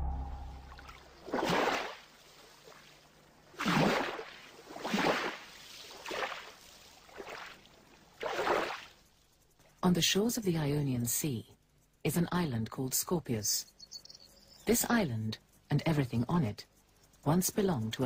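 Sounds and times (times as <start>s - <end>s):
small waves on pebble beach: 1.3s - 9.0s.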